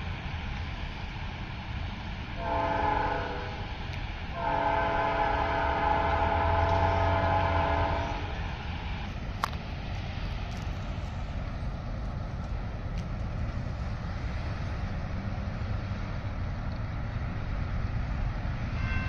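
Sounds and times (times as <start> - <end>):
train rumbling: 0.0 - 19.0
locomotive air horn blasts: 2.4 - 3.7, 4.3 - 8.6, 18.7 - 19.0.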